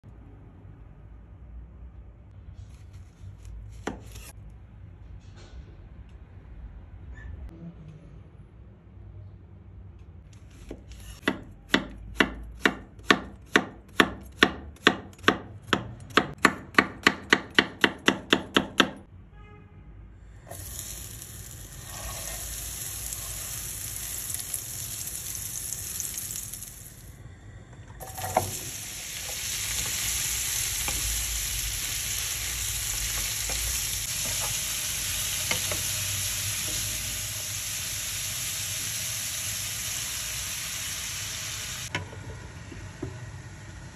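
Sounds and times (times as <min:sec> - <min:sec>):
knife chopping on cutting board: 0:10.5 - 0:19.0
food sizzling in a pan: 0:20.5 - 0:27.2, 0:28.0 - 0:41.9.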